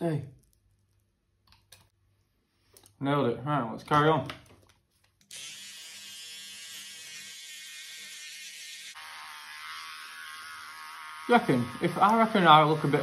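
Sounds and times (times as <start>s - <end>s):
electric hair clippers buzzing: 5.3s - 13.0s.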